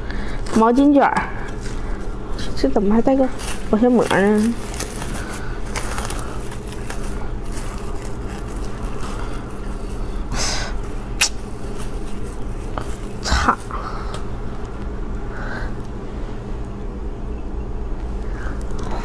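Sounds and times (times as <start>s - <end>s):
steady low hum: 0.0s - 19.0s
cling film crinkling: 3.1s - 13.7s.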